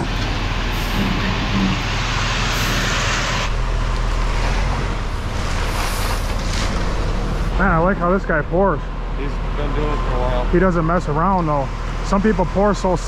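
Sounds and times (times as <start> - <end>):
concrete truck engine running: 0.0 - 13.0
wet concrete sliding down chute: 4.3 - 7.3.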